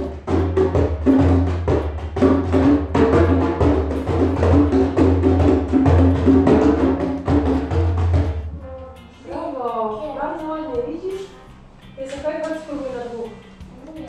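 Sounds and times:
djembe drums playing fast rhythm: 0.0s - 9.3s.

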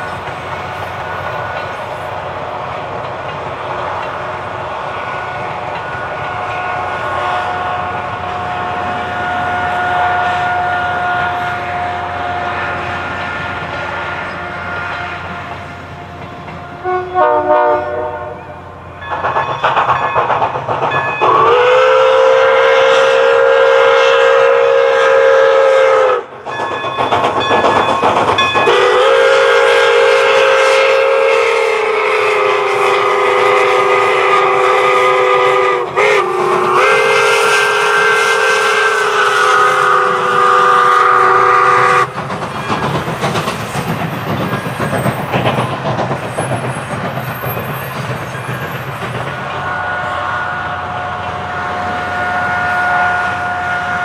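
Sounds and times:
train wheels rumbling on rail: 0.0s - 54.0s
steam whistle blasts: 6.3s - 15.3s, 16.8s - 18.6s, 21.2s - 26.4s, 28.6s - 42.1s, 49.6s - 54.0s.

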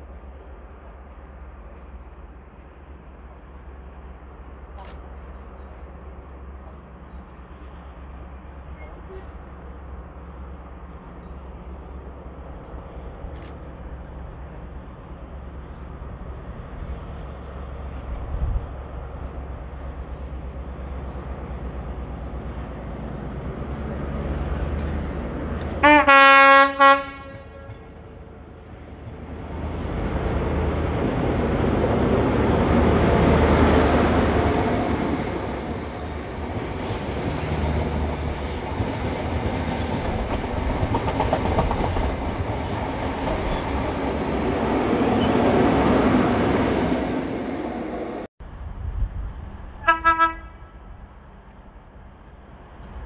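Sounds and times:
train engine passing: 0.0s - 53.0s
distant train horn toot: 25.8s - 28.0s, 49.8s - 50.8s.

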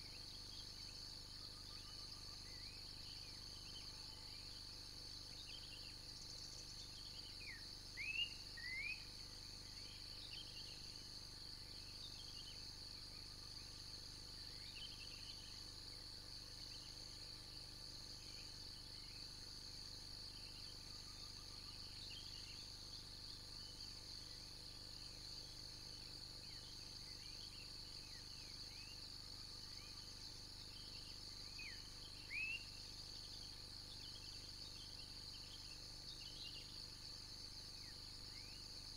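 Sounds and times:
high-pitched insect chorus: 0.0s - 38.9s.

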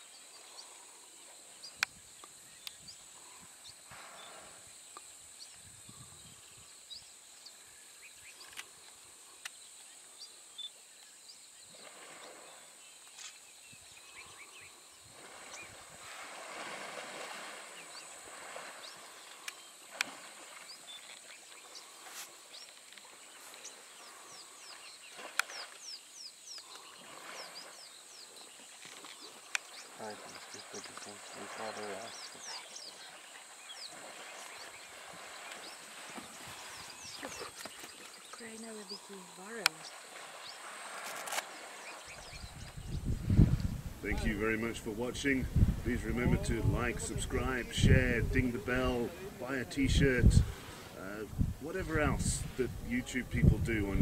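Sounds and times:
water splashing and sloshing: 11.6s - 13.3s, 15.0s - 44.0s.

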